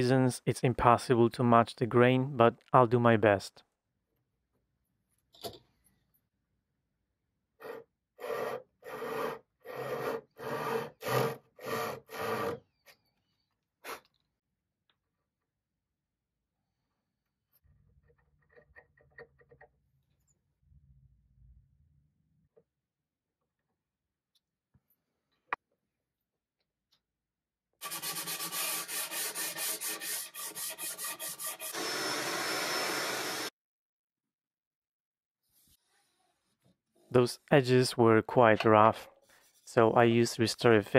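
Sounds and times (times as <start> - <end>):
pull saw rasping through veneer: 7.6 - 12.8
sanding pad rubbing wood: 27.8 - 31.8.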